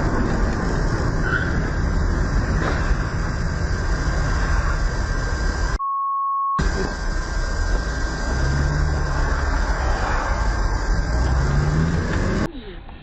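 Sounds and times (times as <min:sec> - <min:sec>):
car engine and road noise: 0:00.0 - 0:05.8, 0:06.6 - 0:13.0
censor bleep: 0:05.8 - 0:06.6.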